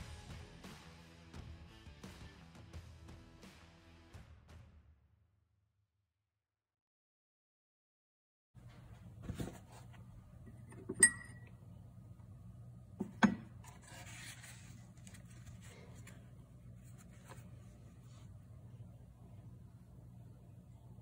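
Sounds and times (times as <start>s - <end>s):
low steady hum: 8.6s - 21.0s
metal clinking on glass: 10.9s - 11.5s.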